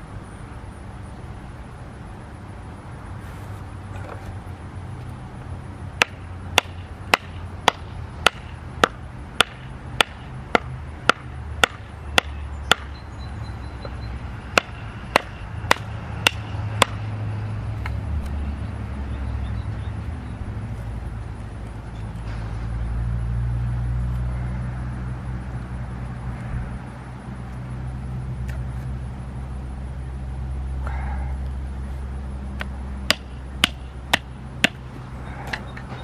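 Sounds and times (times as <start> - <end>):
stick knocking on knife spine: 6.0 - 12.9, 32.6 - 34.8.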